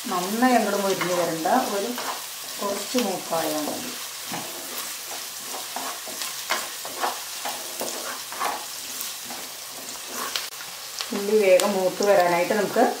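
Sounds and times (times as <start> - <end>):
onions sizzling in oil: 0.0 - 13.0
wooden spatula scraping pot: 0.8 - 10.5.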